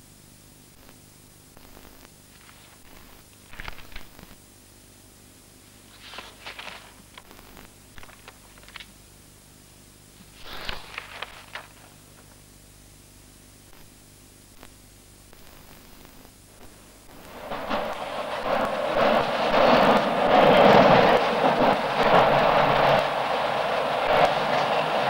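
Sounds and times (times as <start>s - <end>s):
soundtrack hiss and hum: 0.0s - 25.0s
paper rustling: 2.3s - 2.8s, 3.4s - 4.2s, 5.8s - 7.2s, 7.9s - 8.9s, 10.2s - 12.4s.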